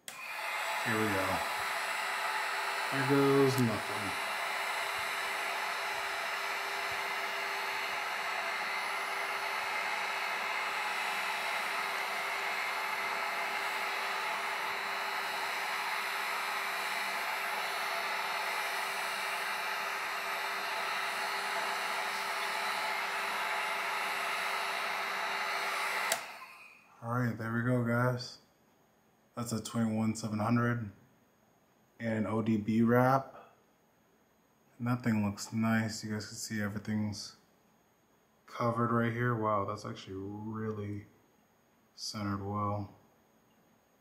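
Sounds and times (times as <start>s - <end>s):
heat gun blowing air: 0.0s - 26.9s.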